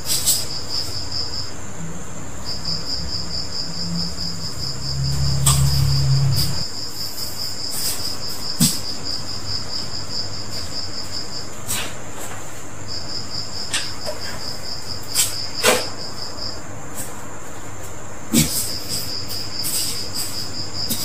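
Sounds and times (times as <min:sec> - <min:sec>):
insect trilling: 0:02.4 - 0:07.3.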